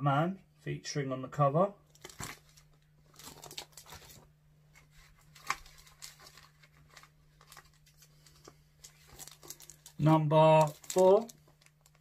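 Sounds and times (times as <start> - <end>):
plastic bags crinkling: 1.9 - 4.3, 4.9 - 12.0.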